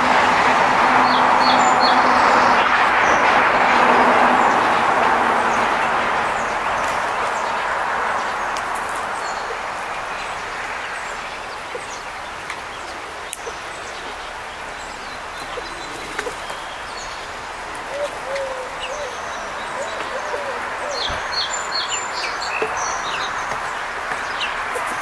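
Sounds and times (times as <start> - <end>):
broad rushing noise: 0.0 - 25.0
songbird chirps: 5.5 - 25.0.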